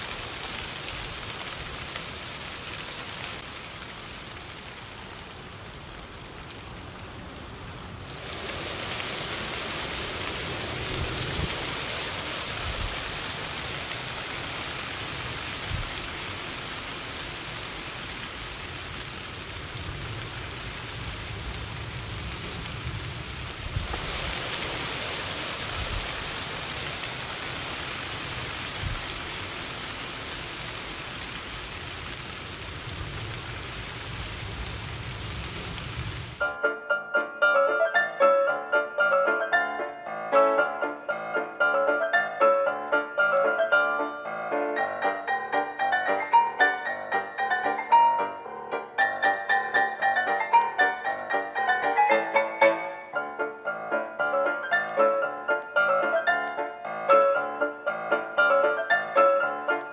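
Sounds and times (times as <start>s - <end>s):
leaves rustling: 0.0s - 36.5s.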